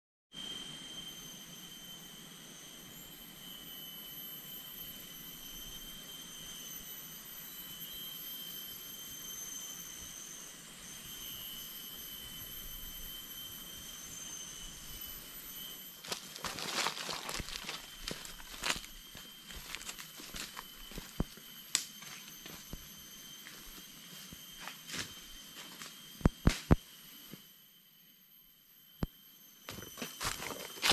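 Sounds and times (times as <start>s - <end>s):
jungle insects droning: 0.4s - 30.9s
footsteps through dry leaves: 16.0s - 21.4s, 29.8s - 30.9s.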